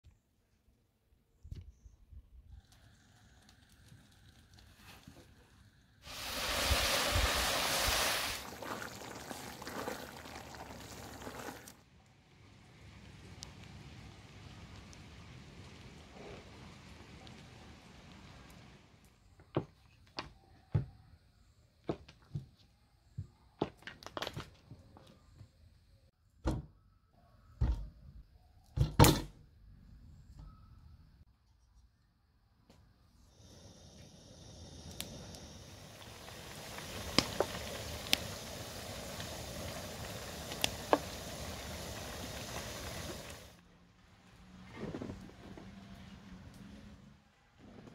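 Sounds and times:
faint rain: 2.6 - 19.3, 33.4 - 47.9
mixture sizzling in a pot: 3.6 - 11.8, 33.4 - 43.6.

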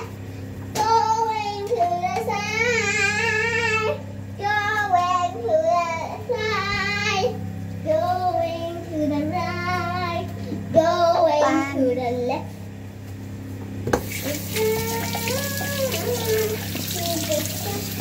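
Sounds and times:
steady low hum: 0.0 - 18.0
high voice singing: 14.2 - 18.0.

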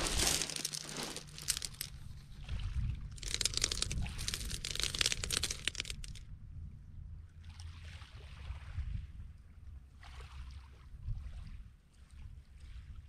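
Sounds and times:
pebbles crunching and clacking: 0.0 - 2.1, 3.1 - 6.2.

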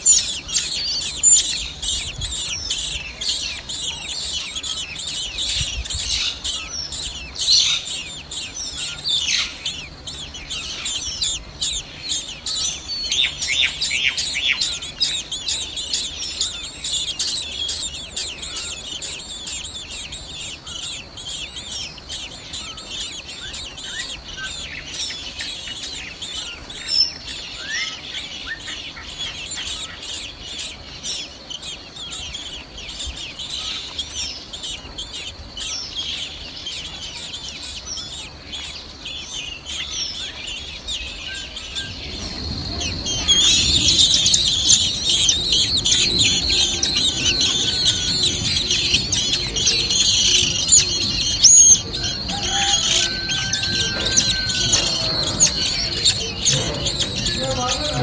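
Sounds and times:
nestlings cheeping: 0.0 - 58.0.

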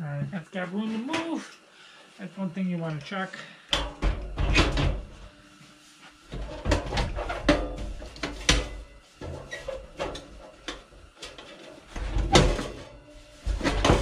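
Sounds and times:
metal clunks and rattles: 3.8 - 5.2, 6.3 - 14.0.

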